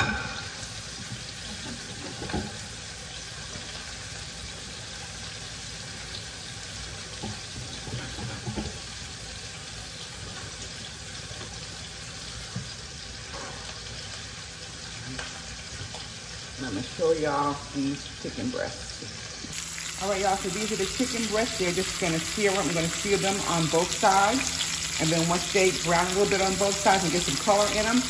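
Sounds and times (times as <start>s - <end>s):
tap water running: 0.0s - 17.7s, 18.9s - 28.0s
chicken sizzling in skillet: 0.0s - 28.0s.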